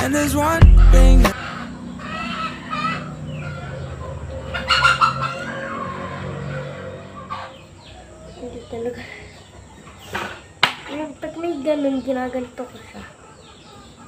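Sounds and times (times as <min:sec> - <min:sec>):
music: 0:00.0 - 0:01.4
chickens clucking: 0:00.6 - 0:14.0.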